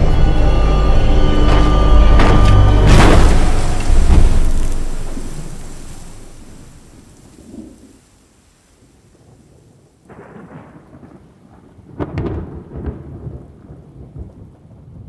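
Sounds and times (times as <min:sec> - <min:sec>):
steady rain: 0:00.0 - 0:15.0
thunder rumbling and cracking: 0:00.8 - 0:15.0.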